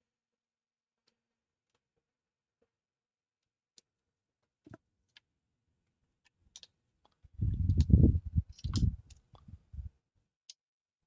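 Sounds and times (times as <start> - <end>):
light clicks of cable connector: 6.6 - 9.5.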